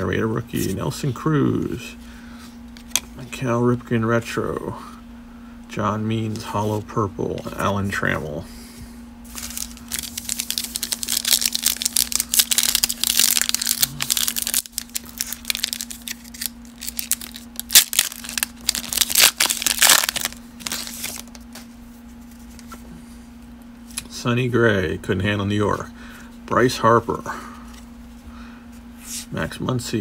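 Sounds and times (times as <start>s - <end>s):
steady low hum: 0.0s - 30.0s
foil wrapper tearing and crinkling: 9.3s - 21.6s.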